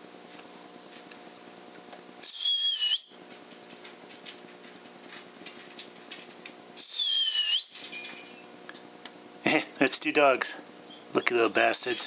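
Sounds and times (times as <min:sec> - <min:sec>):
faint steady hum: 0:00.0 - 0:12.0
short high whistle: 0:02.2 - 0:03.1, 0:06.8 - 0:07.7.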